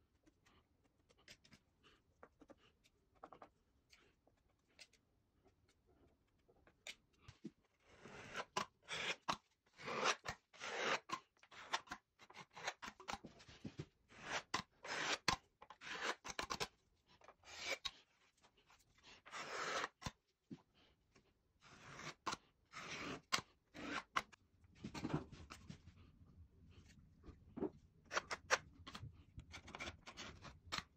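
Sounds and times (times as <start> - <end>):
putty knife scraping plaster: 7.8 - 13.3, 14.1 - 20.2, 21.6 - 25.0, 28.1 - 30.9.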